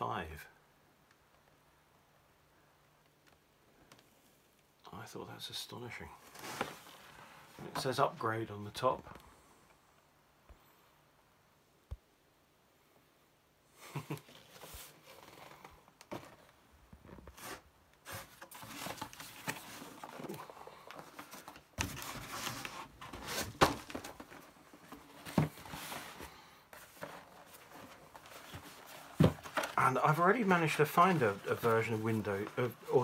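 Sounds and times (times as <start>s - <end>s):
cardboard box rustling and crinkling: 6.2s - 8.0s, 14.3s - 33.0s.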